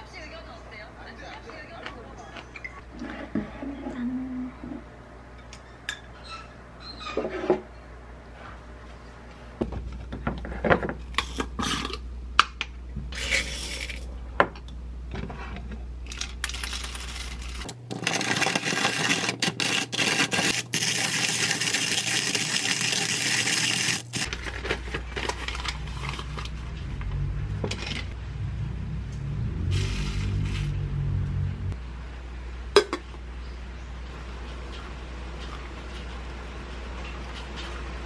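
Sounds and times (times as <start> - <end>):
hand coffee mill grinding: 16.1 - 26.5
paper filter rustling: 16.5 - 26.7.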